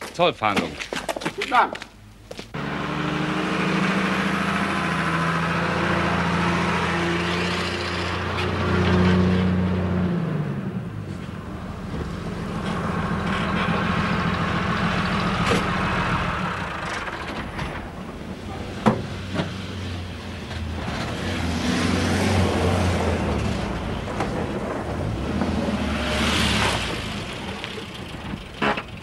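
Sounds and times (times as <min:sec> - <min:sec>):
vehicle engine running: 0:10.7 - 0:21.2, 0:22.2 - 0:29.0.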